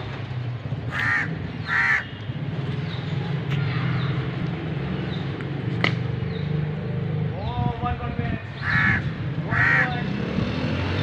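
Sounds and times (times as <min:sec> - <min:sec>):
crow cawing: 0:00.9 - 0:02.2, 0:08.6 - 0:10.0.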